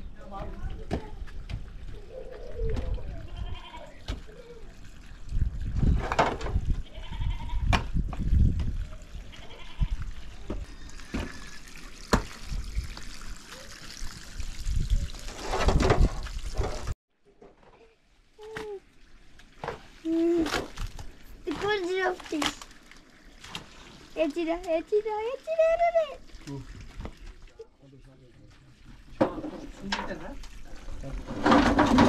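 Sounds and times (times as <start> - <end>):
goats bleating: 3.2 - 4.0, 6.8 - 7.7
stones and shovels scraping: 31.2 - 32.0.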